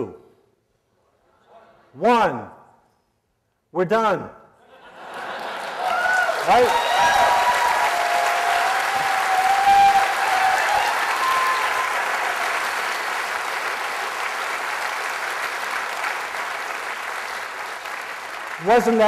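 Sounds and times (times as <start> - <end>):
audience applauding: 4.9 - 19.0
held calls from audience: 5.8 - 14.0.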